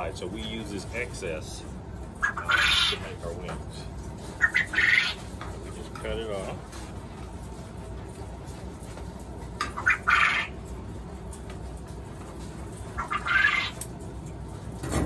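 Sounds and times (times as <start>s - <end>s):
quail calling: 2.1s - 3.4s, 4.2s - 5.4s, 9.6s - 10.7s, 12.8s - 13.9s.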